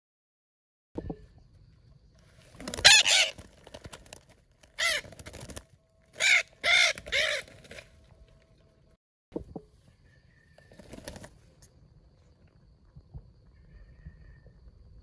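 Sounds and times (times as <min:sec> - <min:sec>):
parrots squawking: 0:02.8 - 0:03.4, 0:04.8 - 0:05.0, 0:06.2 - 0:07.5.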